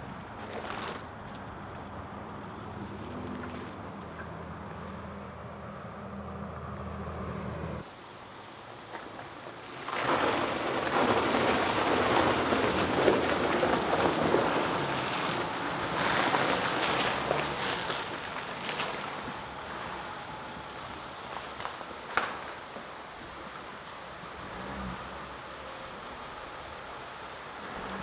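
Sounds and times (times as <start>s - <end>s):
tyres splashing through puddle: 8.4s - 28.0s.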